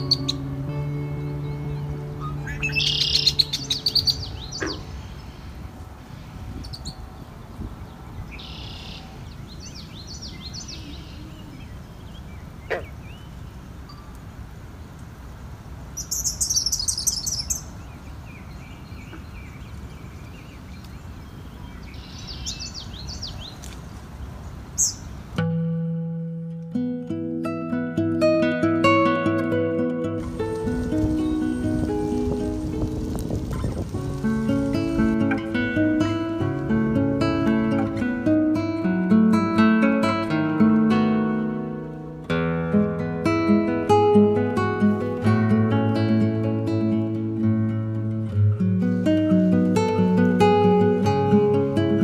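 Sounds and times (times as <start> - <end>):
songbirds singing: 0.0 - 25.4, 30.3 - 38.8.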